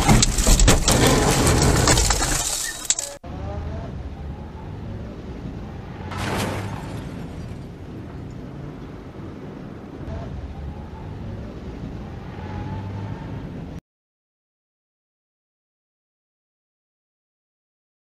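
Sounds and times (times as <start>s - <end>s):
car collision crash: 0.0s - 3.1s.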